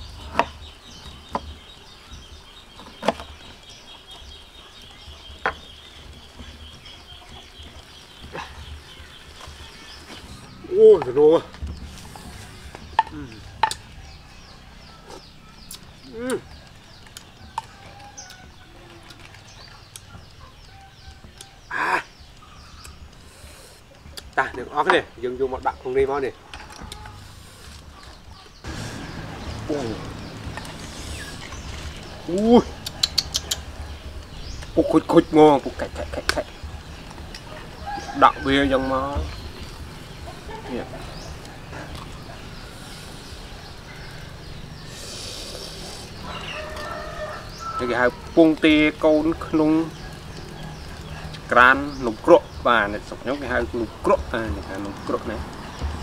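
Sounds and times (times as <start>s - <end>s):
small birds chirping: 0.0s - 56.0s
chicken clucking: 35.5s - 47.8s.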